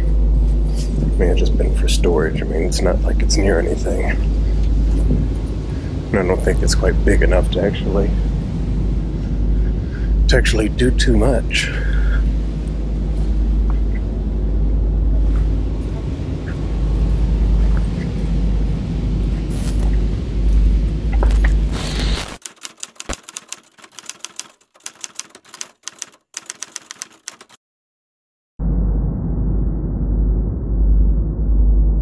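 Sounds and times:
wind rumble: 0.0 - 21.8, 28.6 - 32.0
typewriter key clicks: 22.4 - 27.6.

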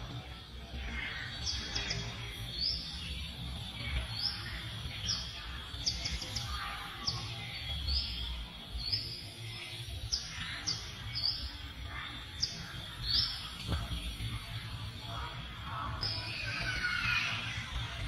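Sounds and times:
bird chirping: 0.0 - 17.9.

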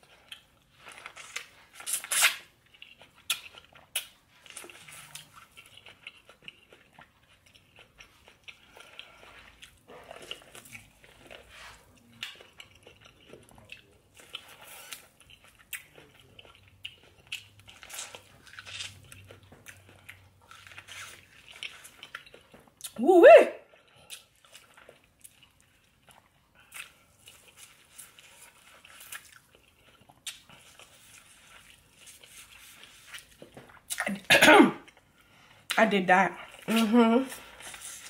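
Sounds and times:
person chewing with mouth smacks: 0.0 - 23.0, 23.6 - 35.8.

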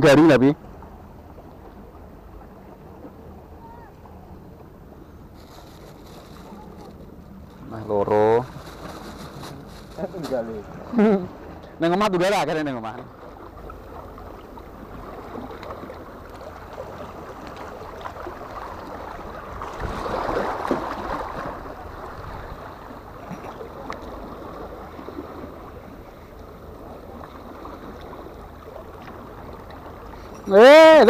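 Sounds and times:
waves washing against rocks: 16.9 - 22.8.

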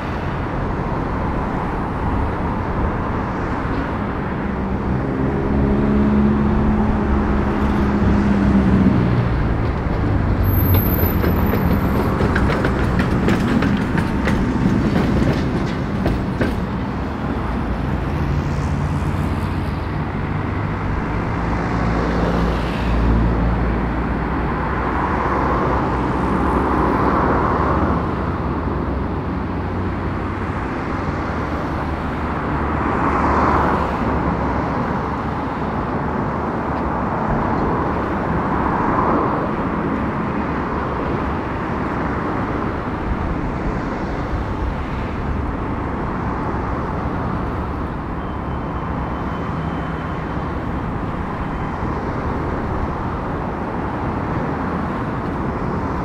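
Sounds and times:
tram electrical hum: 0.0 - 56.0
tram wheels clicking over track: 9.5 - 17.2.

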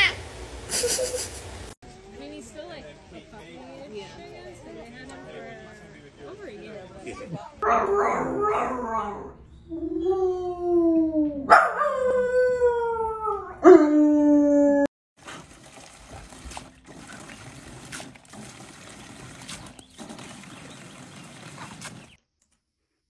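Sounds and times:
hose spraying into pool: 15.2 - 22.2.

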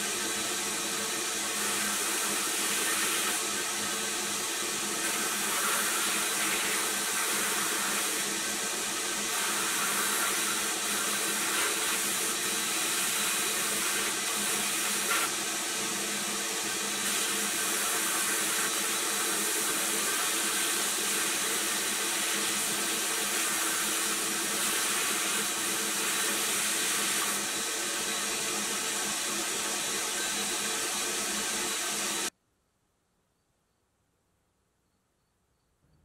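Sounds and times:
media blaster hissing: 0.0 - 15.3.

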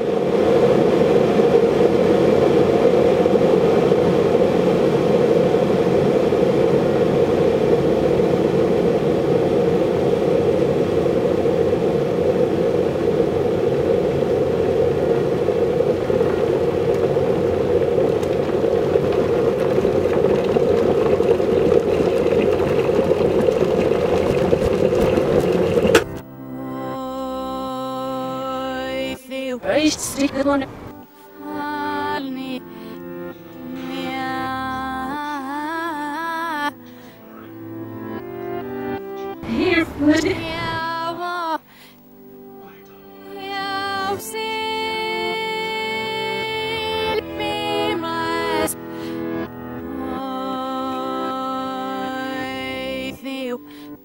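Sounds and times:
car driving through a tunnel: 0.2 - 26.2.

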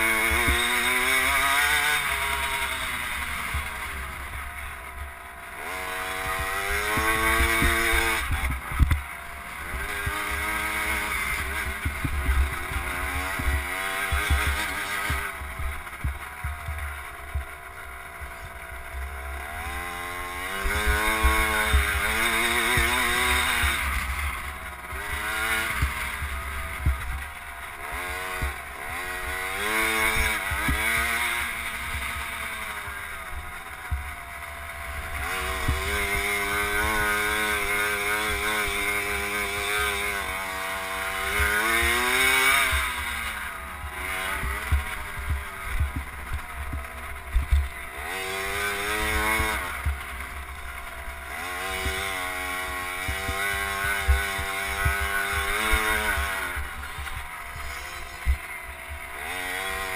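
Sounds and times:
two-stroke motorbike engine revving: 0.0 - 59.9.

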